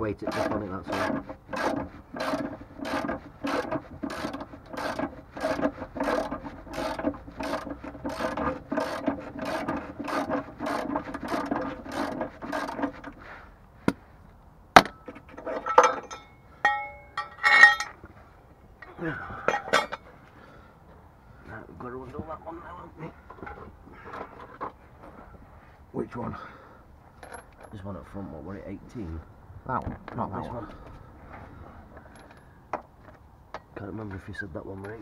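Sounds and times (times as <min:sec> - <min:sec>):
socket ratchet rasping: 0:00.2 - 0:13.2
sharp knocks: 0:14.8 - 0:17.9
metallic clinks of tools: 0:15.6 - 0:18.0.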